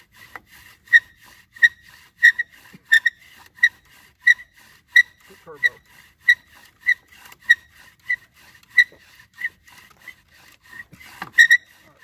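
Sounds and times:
bow drill spindle squeaking: 0.0 - 12.0.

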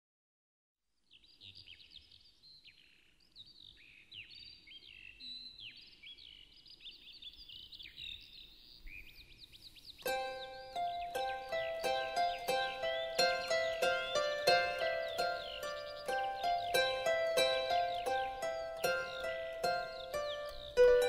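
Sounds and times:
songbirds chirping: 0.9 - 21.0
plucked string music: 10.1 - 21.0.

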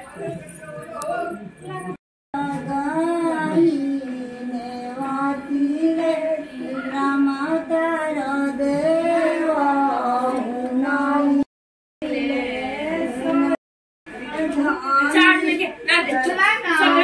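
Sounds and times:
woman singing slow melody: 2.4 - 13.6.

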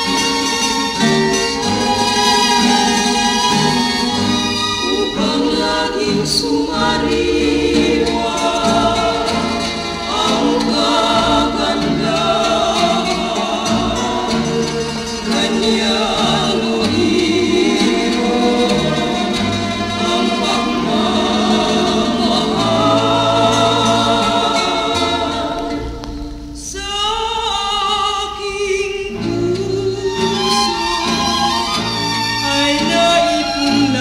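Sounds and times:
instrumental accompaniment: 0.0 - 26.8, 29.1 - 34.0
voices singing in harmony: 0.0 - 34.0.

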